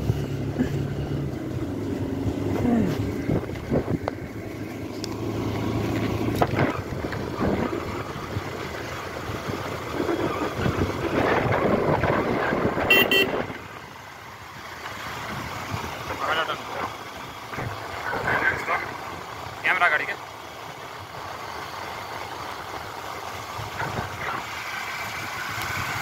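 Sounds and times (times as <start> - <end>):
motorcycle running: 0.0 - 26.0
wind noise on microphone: 2.9 - 4.2, 6.3 - 13.8
short horn beeps: 12.9 - 13.5.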